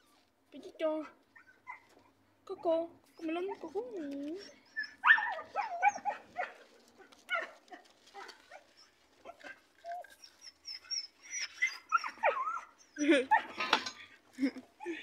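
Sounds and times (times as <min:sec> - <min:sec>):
dog whining and yelping: 0:01.3 - 0:02.1, 0:03.0 - 0:06.7, 0:07.3 - 0:13.8.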